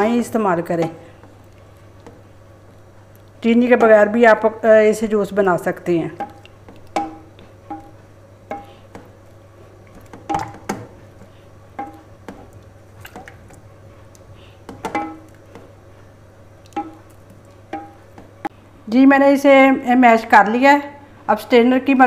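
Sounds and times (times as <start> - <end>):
wood knocking on metal pan: 6.2 - 9.1, 10.1 - 11.0, 11.8 - 12.5, 14.7 - 15.3, 16.7 - 17.1, 17.7 - 18.4.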